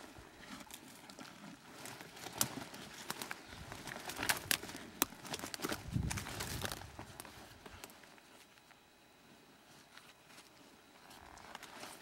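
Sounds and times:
faint rustling of dry brush: 0.0s - 12.0s.

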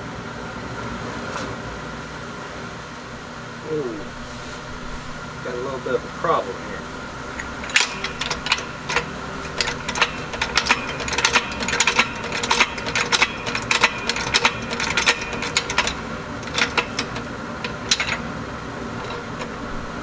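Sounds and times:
metallic clicks and clanks of jack: 7.2s - 19.9s.

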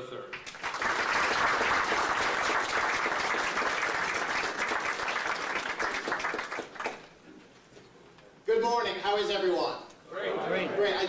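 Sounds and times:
audience applauding: 0.4s - 7.1s.

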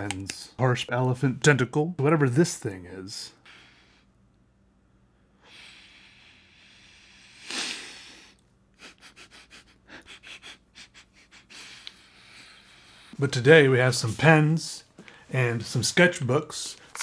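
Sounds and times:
man blowing breathily: 5.4s - 13.2s.

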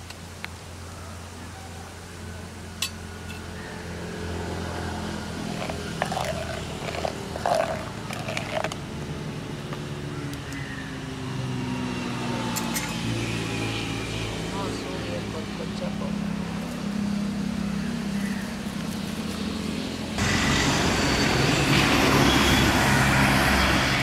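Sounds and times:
ladle stirring milk in clay pot: 5.4s - 8.8s.

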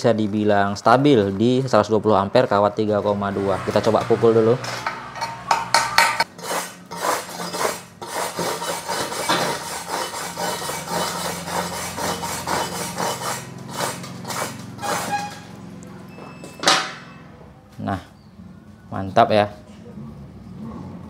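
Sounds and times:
scraping slag off weld: 4.6s - 15.6s.

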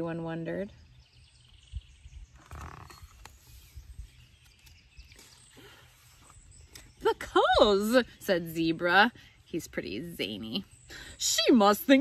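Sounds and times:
faint outdoor background noise: 0.0s - 12.0s
book pages rustling: 2.4s - 6.4s.

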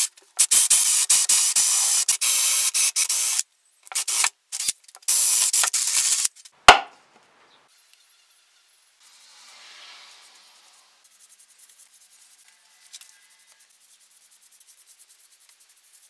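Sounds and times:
sharp knock: 6.7s - 6.9s.

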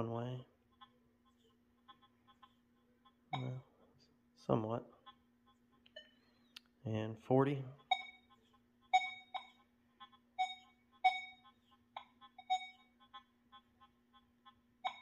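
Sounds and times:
faint steady low hum: 0.0s - 15.0s
metal detector short beeps: 3.4s - 3.6s, 7.9s - 8.3s, 9.0s - 9.6s, 10.4s - 11.4s, 12.4s - 12.9s.

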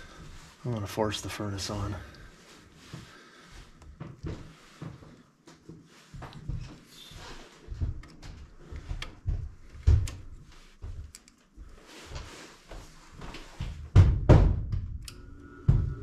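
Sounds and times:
knocks against sheet-metal cabinet: 13.9s - 14.8s.

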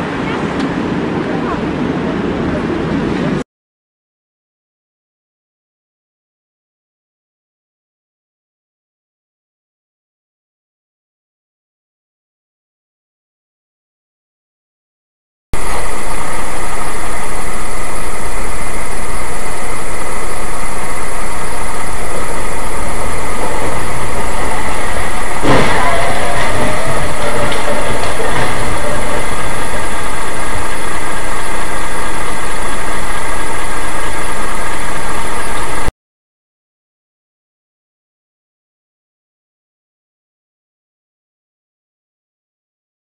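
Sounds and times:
road noise: 0.0s - 3.4s, 15.6s - 35.9s
car engine running: 15.6s - 35.9s.

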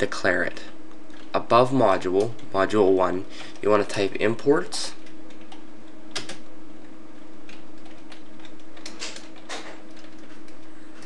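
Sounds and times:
faint steady hum: 0.0s - 11.0s
keyboard keys typing: 4.9s - 6.4s, 7.4s - 10.7s.

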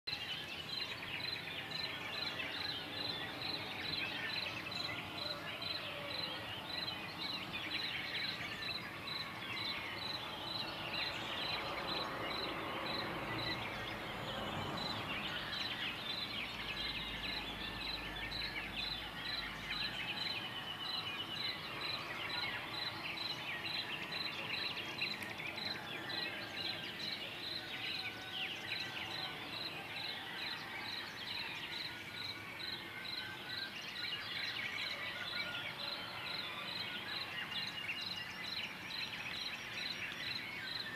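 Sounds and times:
songbirds chirping and singing: 0.1s - 40.9s.

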